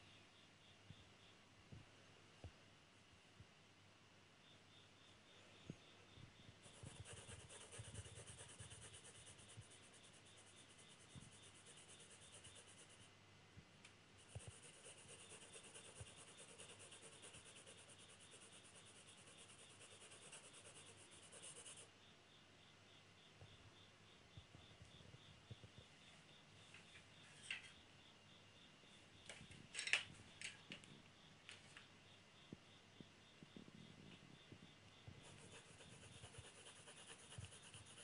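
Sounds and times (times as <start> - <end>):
pencil shading on paper: 6.6 - 13.1, 14.2 - 21.9, 35.2 - 38.0.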